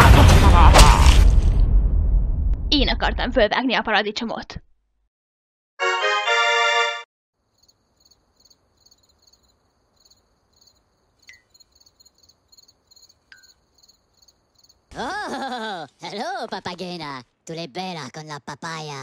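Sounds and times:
crickets chirping: 0:07.4 - 0:14.9.

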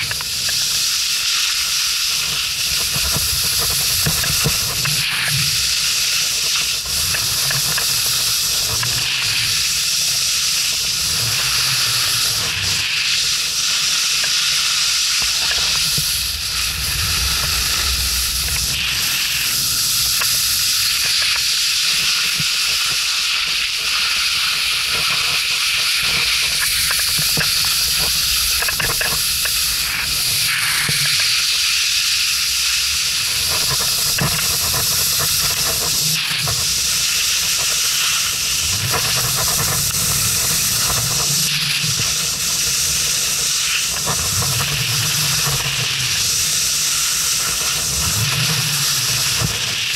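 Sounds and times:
wind on microphone: 0:15.6 - 0:21.2.

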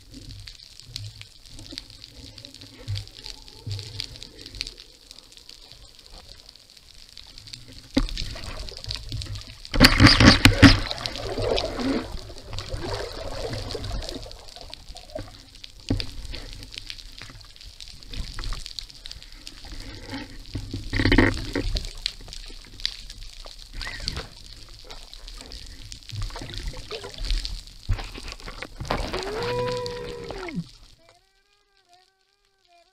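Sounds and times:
underwater water noise: 0:00.0 - 0:32.9
gurgling pouring bursts: 0:07.6 - 0:16.8, 0:23.7 - 0:31.1.

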